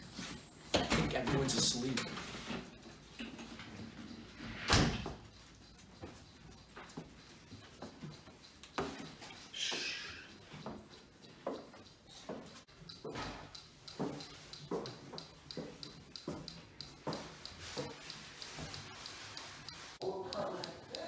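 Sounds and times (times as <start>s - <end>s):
door shutting with a thump: 4.6s - 5.0s
soft footsteps on stairs: 5.0s - 13.2s.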